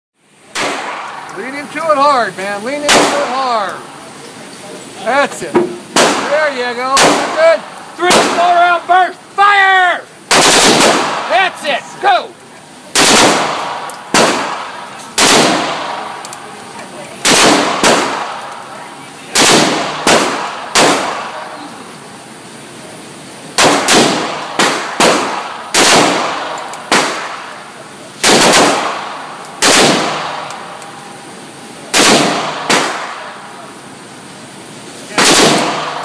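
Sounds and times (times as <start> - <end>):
rifle shots echoing indoors: 2.9 - 3.4, 7.0 - 7.4, 10.3 - 11.3, 12.9 - 16.2, 17.2 - 18.6, 19.4 - 21.4, 23.6 - 27.5, 28.2 - 30.9, 31.9 - 33.3, 35.2 - 36.0.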